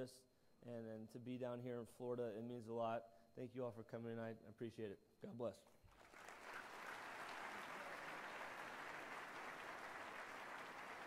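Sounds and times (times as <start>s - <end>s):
audience applauding: 5.9s - 11.0s.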